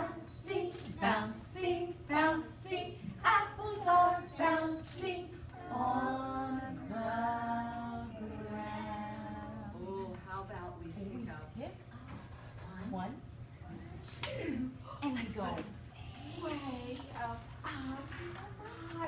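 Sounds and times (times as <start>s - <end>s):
young children singing: 0.0s - 9.9s
woman singing: 0.0s - 10.2s.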